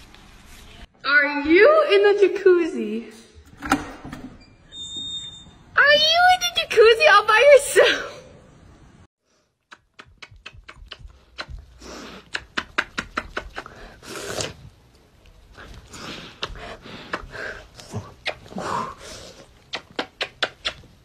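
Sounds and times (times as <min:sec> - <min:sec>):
rapid smacking kisses: 0:09.6 - 0:14.6, 0:16.2 - 0:18.7, 0:19.4 - 0:21.0.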